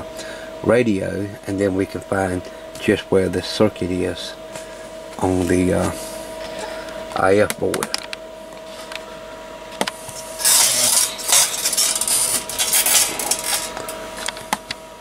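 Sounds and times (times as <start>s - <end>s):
rubbing scraping and clatter: 10.4s - 13.8s.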